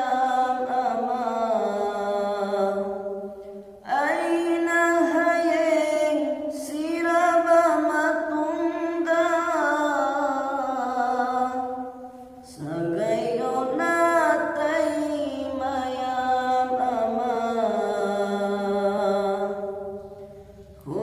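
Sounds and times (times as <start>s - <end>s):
man singing unaccompanied hymn: 3.9s - 11.8s, 12.4s - 20.0s, 20.8s - 21.0s.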